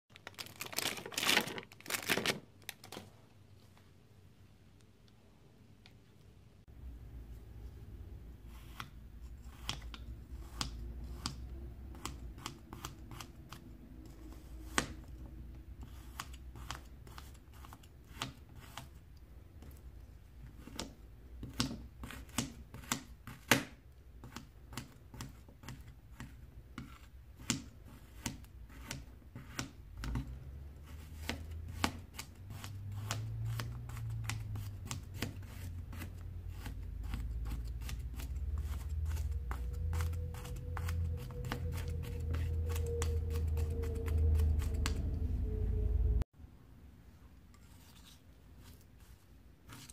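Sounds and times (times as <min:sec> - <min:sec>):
low steady hum: 0:28.6 - 0:49.9.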